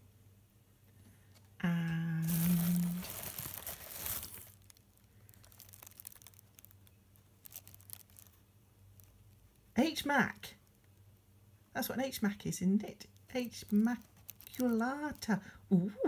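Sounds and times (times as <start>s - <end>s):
person humming: 1.6s - 3.6s
plastic bag crinkling: 1.7s - 9.7s, 13.2s - 15.4s
faint handling ticks: 2.4s - 9.7s, 13.1s - 15.4s.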